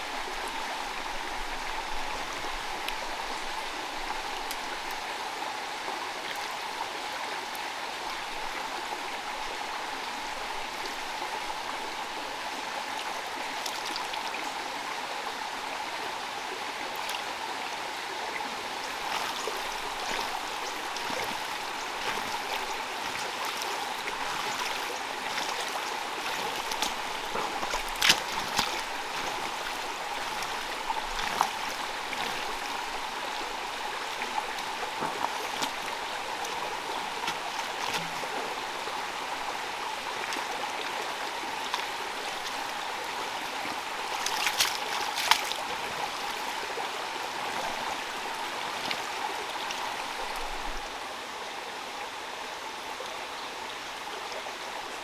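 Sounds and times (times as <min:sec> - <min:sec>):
running water hiss: 0:00.0 - 0:51.6
hands splashing in muddy water: 0:19.0 - 0:33.0, 0:44.1 - 0:45.7.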